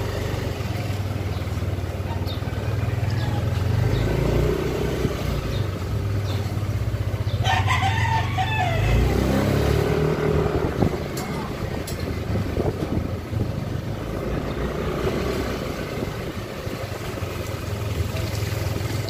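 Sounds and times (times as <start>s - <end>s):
scooter engine running: 0.0s - 7.6s, 9.0s - 19.0s
rooster crowing: 7.4s - 9.4s.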